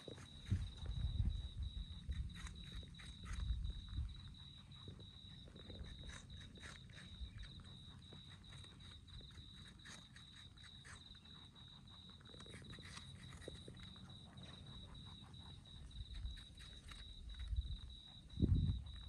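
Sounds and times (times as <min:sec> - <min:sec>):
insect trilling: 0:00.0 - 0:19.0
rabbits chewing apple: 0:00.0 - 0:19.0.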